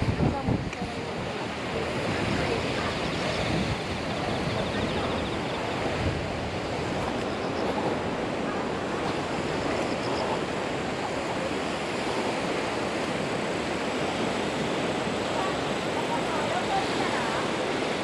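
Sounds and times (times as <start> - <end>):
steady wind: 0.0 - 18.0
waves washing on shore: 0.0 - 18.0.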